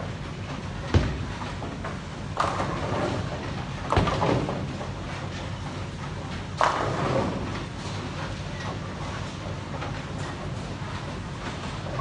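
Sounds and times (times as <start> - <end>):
bowling balls rolling on lanes: 0.8 - 12.0.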